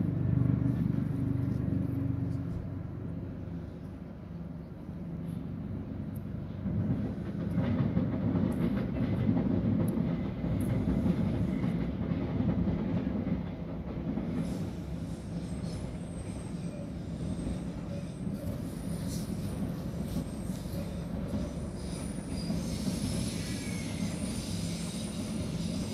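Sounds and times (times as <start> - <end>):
low dense vehicle noise: 0.0 - 7.6.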